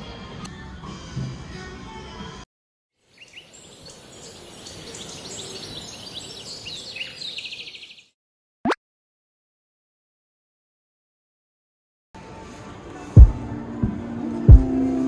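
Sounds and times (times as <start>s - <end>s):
short bird-like chirps: 3.2s - 8.1s
background music: 12.2s - 15.0s.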